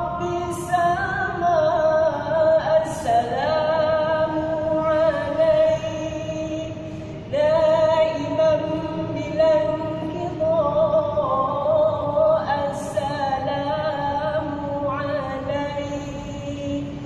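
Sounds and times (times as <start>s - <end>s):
women's group singing in unison: 7.3s - 17.0s.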